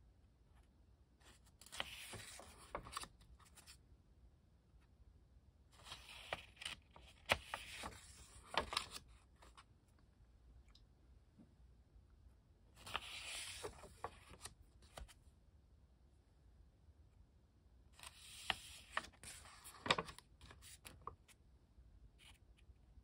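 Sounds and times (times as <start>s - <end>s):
sketchbook pages turning: 1.2s - 3.8s, 5.8s - 9.7s, 12.8s - 15.2s, 18.0s - 21.3s.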